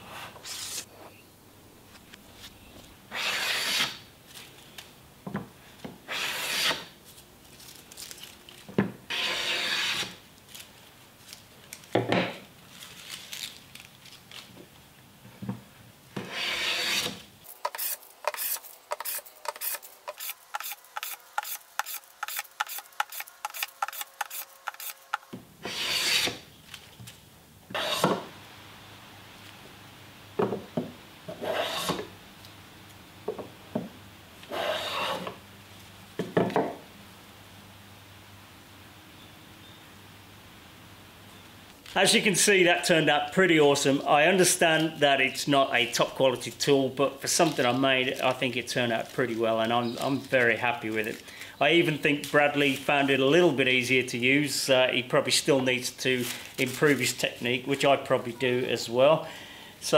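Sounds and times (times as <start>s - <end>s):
hand plane shaving wood: 6.1s - 6.8s, 16.3s - 25.0s, 25.7s - 26.4s, 31.4s - 32.0s, 34.5s - 35.3s.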